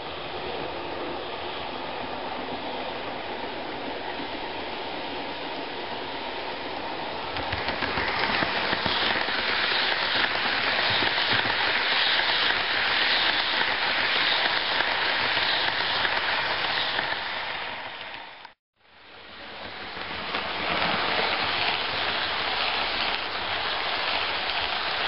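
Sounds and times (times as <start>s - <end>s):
model train wheels rattling on rails: 7.3s - 18.5s, 19.5s - 25.0s.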